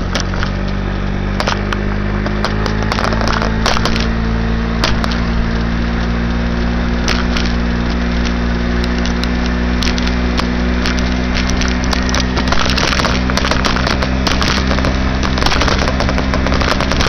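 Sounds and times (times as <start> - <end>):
sharp clicks and knocks: 0.0 - 4.2, 4.8 - 5.4, 7.0 - 17.0
moped engine running: 0.0 - 17.0.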